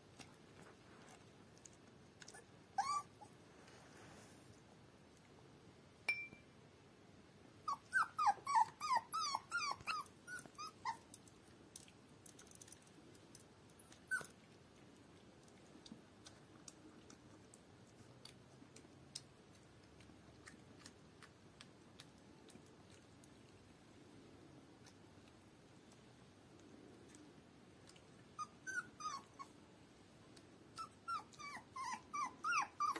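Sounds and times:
puppy whimpering: 2.2 - 3.4, 7.6 - 11.1, 13.8 - 14.4, 28.3 - 29.5, 30.4 - 32.9
faint small clicks: 10.4 - 14.4.

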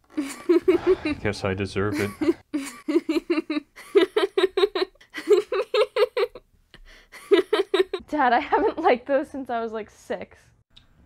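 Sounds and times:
girl laughing: 0.1 - 6.4, 7.2 - 8.9.

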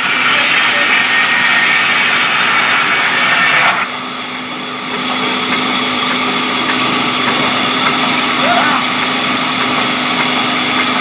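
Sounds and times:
band saw cutting wood: 0.0 - 4.0
saw motor humming: 0.0 - 11.0.

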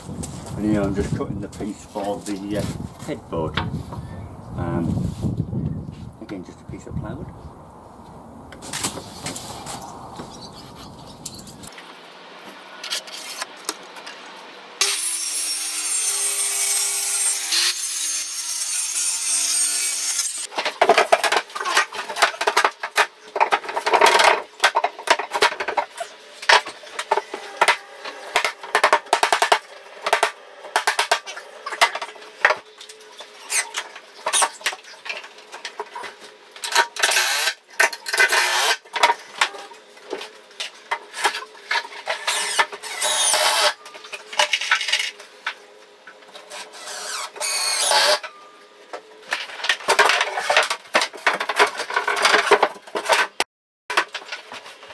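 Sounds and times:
power saw cutting plywood: 14.8 - 20.5, 42.0 - 43.8, 46.6 - 48.2.

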